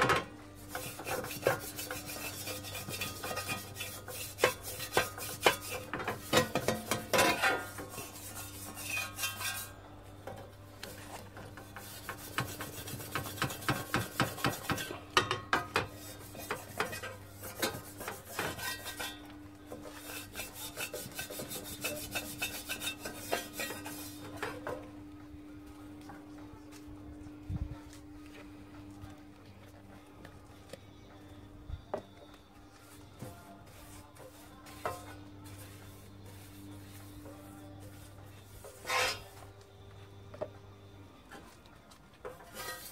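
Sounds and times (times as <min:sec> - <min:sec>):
metal scrubber scraping a copper pan: 0:00.0 - 0:09.8, 0:10.9 - 0:24.7, 0:33.7 - 0:39.4, 0:42.3 - 0:42.9.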